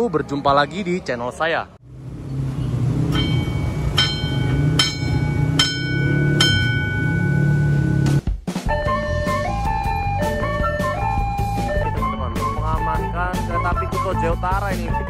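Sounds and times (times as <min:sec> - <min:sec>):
level-crossing bell ringing: 0:03.1 - 0:08.0.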